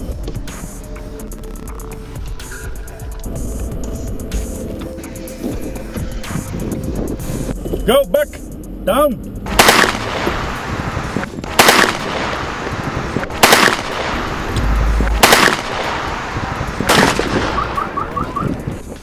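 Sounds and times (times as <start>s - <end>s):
loud gunshots: 9.5s - 10.5s, 11.5s - 12.6s, 13.3s - 18.0s.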